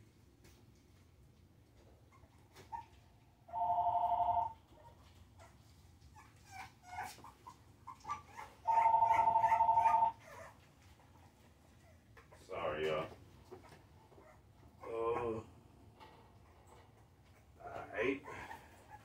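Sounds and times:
puppies whimpering and yelping: 2.0s - 12.4s, 13.5s - 15.4s, 18.2s - 19.0s
phone ringing: 3.5s - 4.6s, 8.7s - 10.1s.

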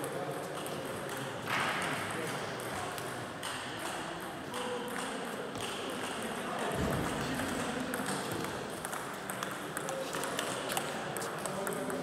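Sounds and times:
murmur of voices: 0.0s - 12.0s
table tennis balls clicking: 2.6s - 12.0s.

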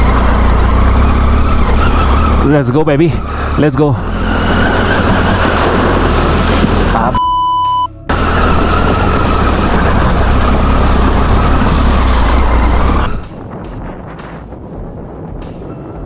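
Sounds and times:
motorcycle engine pulling: 0.0s - 7.1s, 8.1s - 13.2s
water splashing around wheels: 0.0s - 7.2s, 8.1s - 13.5s
censor bleep: 7.0s - 8.1s.

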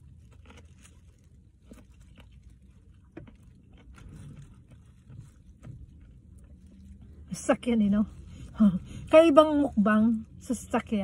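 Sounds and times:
person chewing: 0.0s - 7.2s.

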